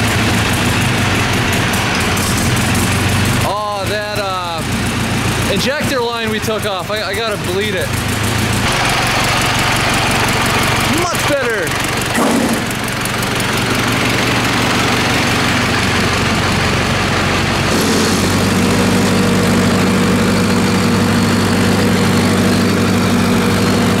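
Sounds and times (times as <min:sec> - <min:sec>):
diesel tractor engine running: 0:00.0 - 0:24.0.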